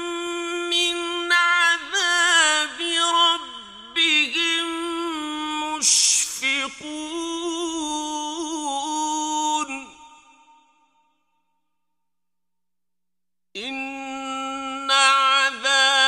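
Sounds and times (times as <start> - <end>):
man reciting melodically: 0.0 - 10.2, 13.6 - 16.0.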